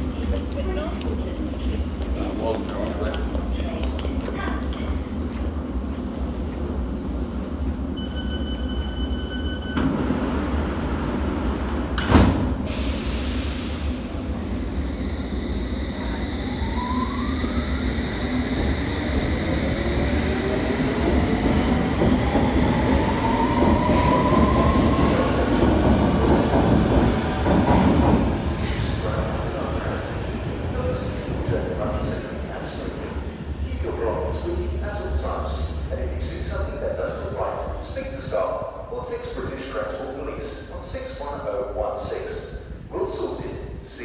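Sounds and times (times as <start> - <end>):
door warning beeps: 8.0 - 10.0
sliding doors banging shut: 11.9 - 12.7.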